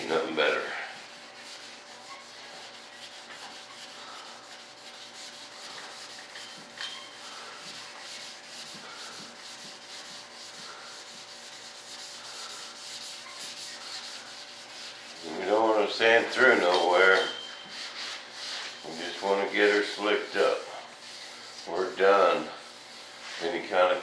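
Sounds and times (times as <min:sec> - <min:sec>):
sandpaper sanding by hand: 0:00.0 - 0:24.0.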